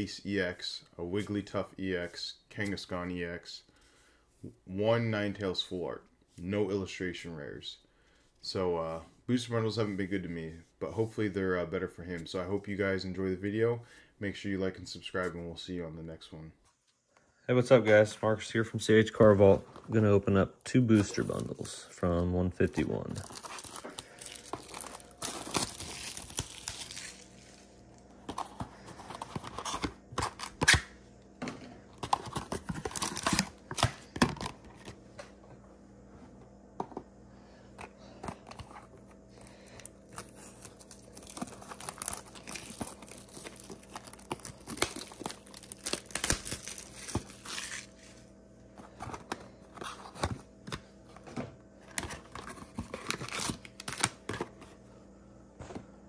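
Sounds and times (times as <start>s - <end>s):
plastic shrink wrap tearing: 23.0s - 27.4s, 40.2s - 47.9s.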